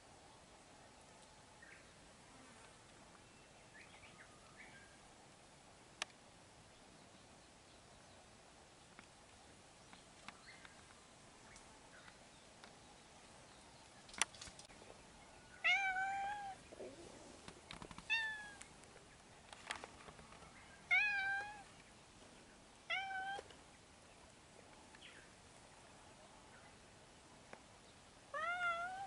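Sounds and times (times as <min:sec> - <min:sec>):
cat meowing: 0:15.6 - 0:16.6, 0:20.9 - 0:21.6, 0:28.4 - 0:29.0.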